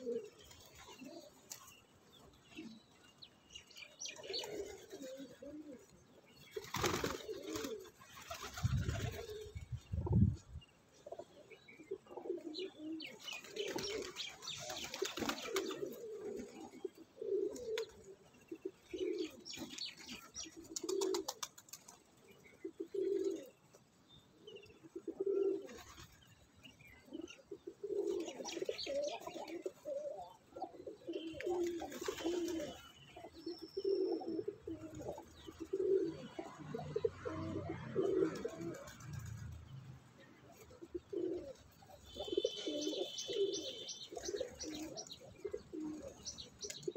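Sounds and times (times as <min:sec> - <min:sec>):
pigeons cooing: 0:00.0 - 0:03.0, 0:03.6 - 0:10.4, 0:11.0 - 0:23.8, 0:24.4 - 0:39.5, 0:40.4 - 0:46.9
wings flapping: 0:06.6 - 0:09.5, 0:13.3 - 0:16.5, 0:19.6 - 0:22.0, 0:31.6 - 0:32.8, 0:38.1 - 0:39.6.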